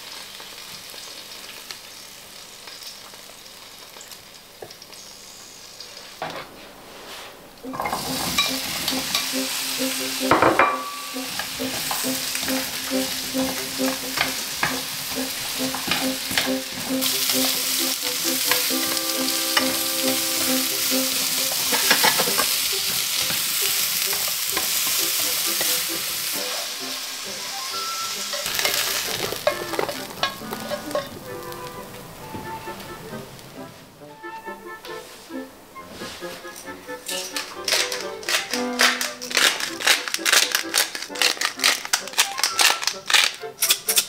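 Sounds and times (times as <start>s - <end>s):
vegetables sizzling in a frying pan: 0.0s - 32.9s, 37.1s - 43.8s
tongs scraping and clicking on pan: 7.7s - 26.1s, 28.3s - 31.2s, 36.6s - 44.0s
pieces dropping into ceramic dish: 37.1s - 43.4s.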